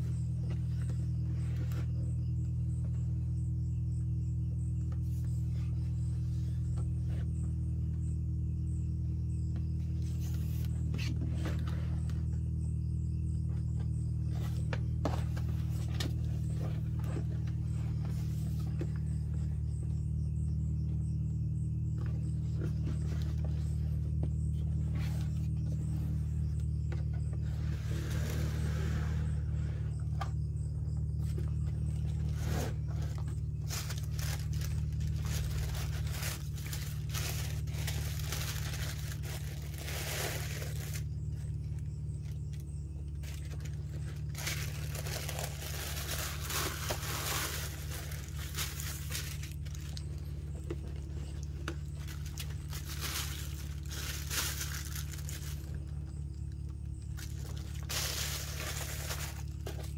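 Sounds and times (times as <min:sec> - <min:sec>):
steady low hum: 0:00.0 - 0:59.9
packaging crinkling and rustling: 0:33.0 - 0:41.1, 0:43.2 - 0:55.9, 0:57.1 - 0:59.9.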